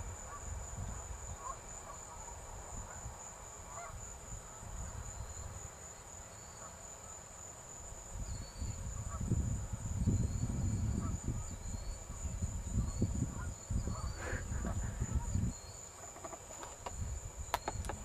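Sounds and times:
high-pitched insect drone: 0:00.0 - 0:18.0
low rumbling microphone noise: 0:08.2 - 0:15.6.

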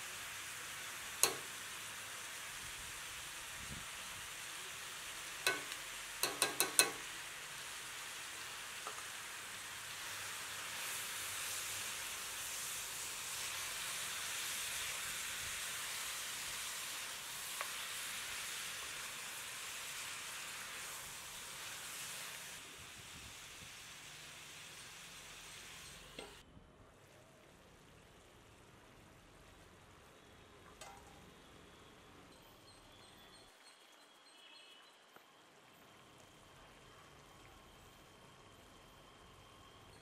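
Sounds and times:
food sizzling in a hot pan: 0:00.0 - 0:26.4
utensil clinking on pan: 0:05.4 - 0:07.1.

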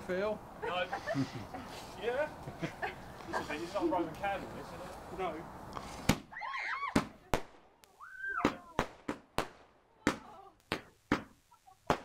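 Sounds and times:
firework barrage shots: 0:06.9 - 0:07.8, 0:08.4 - 0:12.0.

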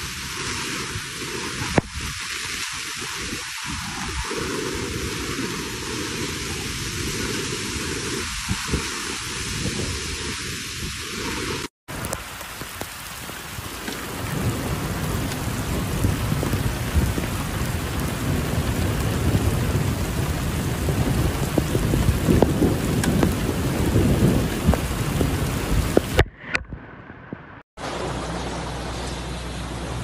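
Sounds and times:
heavy rain on pavement: 0:00.0 - 0:26.3.

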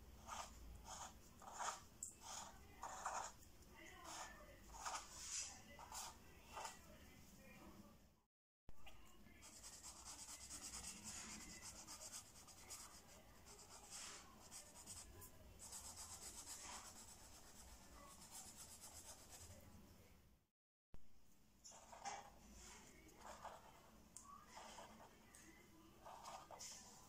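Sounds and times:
felt-tip pen scratching on paper: 0:00.2 - 0:03.4, 0:09.4 - 0:19.6, 0:26.0 - 0:26.8.

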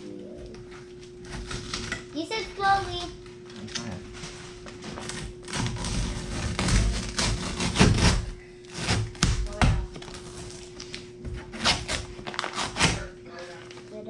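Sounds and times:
steady low hum: 0:00.0 - 0:14.0
sheet peeling with crackling: 0:01.2 - 0:02.0, 0:02.7 - 0:14.0.

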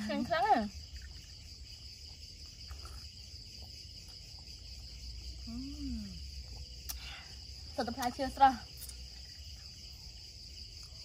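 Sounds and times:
night insects chorus: 0:00.0 - 0:11.0
person humming: 0:05.5 - 0:06.2.

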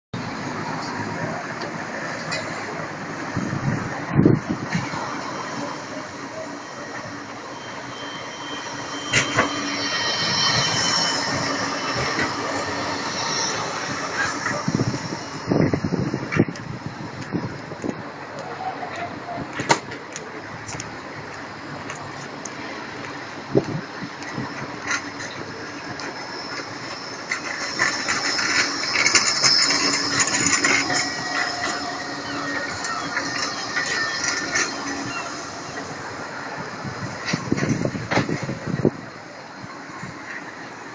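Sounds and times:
tram passing on track: 0:00.1 - 0:40.9
faint high whine: 0:03.4 - 0:17.6, 0:23.2 - 0:40.9.

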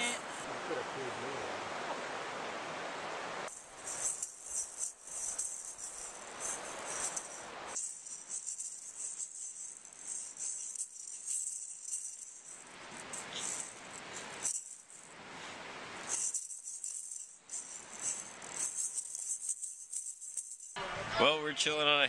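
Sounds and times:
toy maraca rattling: 0:03.5 - 0:20.8.

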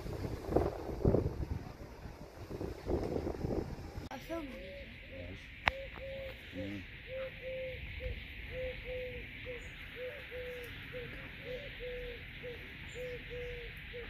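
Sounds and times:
steady background hiss: 0:00.0 - 0:14.0
pigeon cooing: 0:04.5 - 0:14.0.

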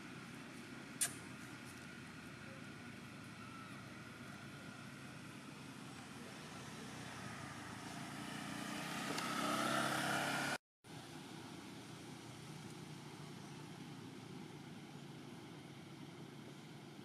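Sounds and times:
distant engine hum: 0:00.0 - 0:17.0
vehicle passing close by: 0:06.0 - 0:10.6.

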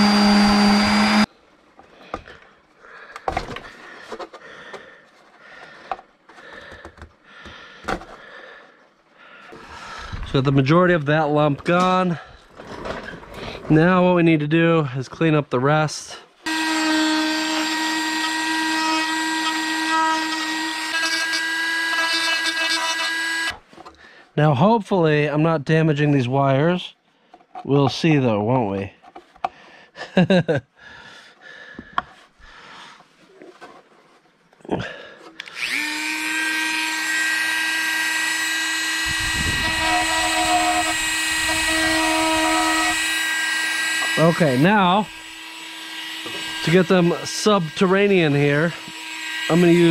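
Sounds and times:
rotary tool grinding whine: 0:00.0 - 0:01.3, 0:16.4 - 0:23.6, 0:35.4 - 0:49.9.

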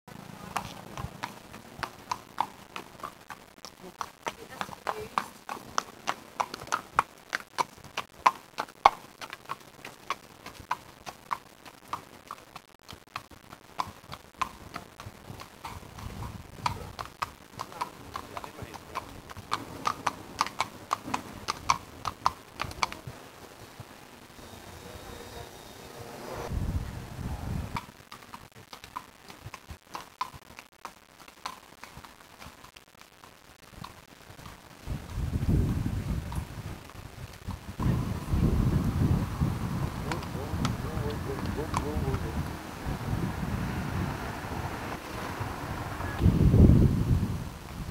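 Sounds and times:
horse hooves clip-clopping on tarmac: 0:00.1 - 0:24.1, 0:27.7 - 0:46.3
low rumble: 0:24.6 - 0:27.8, 0:37.5 - 0:47.6.

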